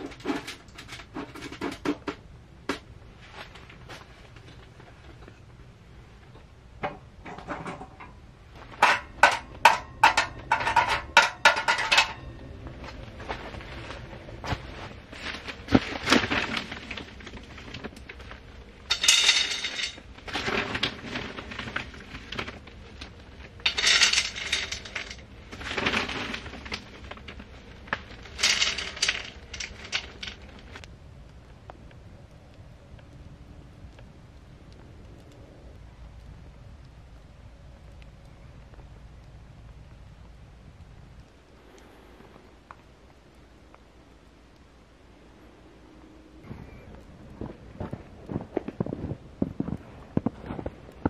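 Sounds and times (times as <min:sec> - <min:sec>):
scraping and rustling: 0:00.0 - 0:02.2, 0:07.2 - 0:30.9
metal cookware clinking: 0:08.8 - 0:12.3, 0:18.9 - 0:20.0.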